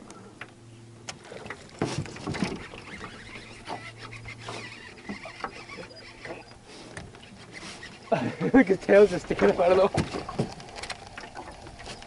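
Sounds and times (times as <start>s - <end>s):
knocks and rustling: 1.4s - 5.3s, 9.7s - 12.0s
electric motor humming: 2.6s - 12.0s.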